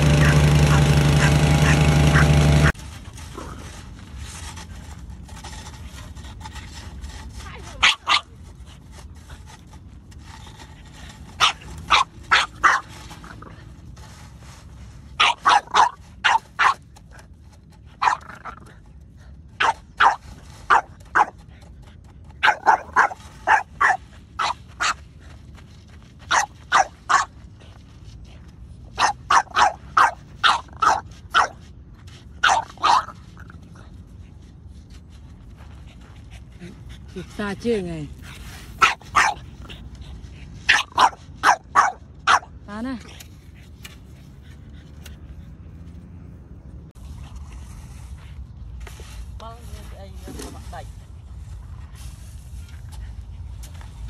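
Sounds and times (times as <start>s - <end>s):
dog barking: 0.0s - 2.5s, 7.8s - 8.3s, 11.4s - 12.9s, 15.2s - 16.8s, 22.4s - 25.0s, 26.3s - 27.3s, 29.0s - 31.6s, 32.4s - 33.1s, 38.8s - 39.4s, 40.7s - 42.5s.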